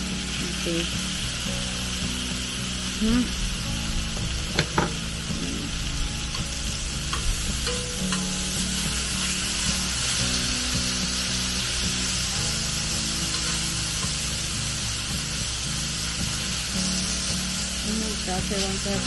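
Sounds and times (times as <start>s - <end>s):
meat sizzling on a griddle: 0.0s - 19.0s
metal tongs clicking on pan: 7.1s - 8.4s.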